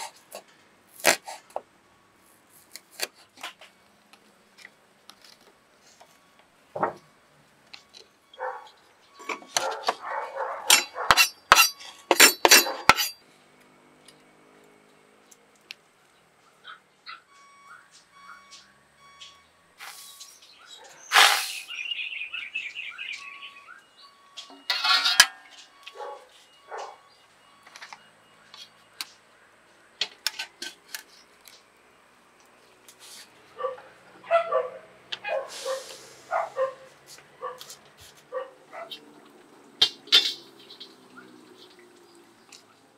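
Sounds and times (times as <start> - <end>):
dog barking: 8.4 - 8.8, 9.6 - 11.2, 12.6 - 12.9, 26.0 - 27.0, 33.6 - 37.7, 38.3 - 39.0.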